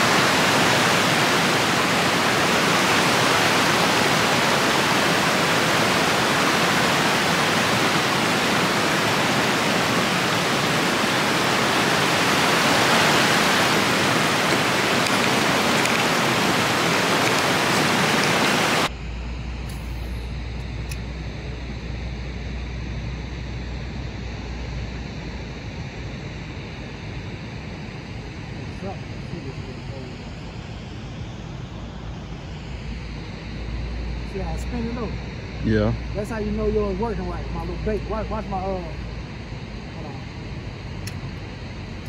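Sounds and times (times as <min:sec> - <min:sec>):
rushing water: 0:00.0 - 0:18.9
low hum: 0:00.0 - 0:42.0.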